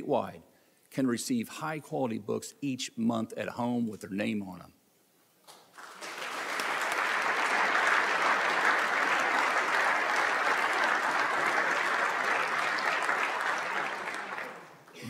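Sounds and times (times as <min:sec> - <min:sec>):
people applauding: 0:05.7 - 0:15.0.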